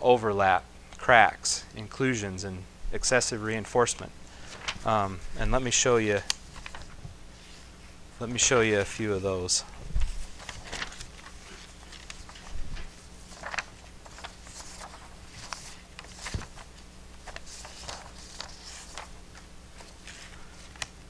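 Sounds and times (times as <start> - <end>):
steady low hum: 0.0 - 21.0
paper rustling: 4.3 - 21.0.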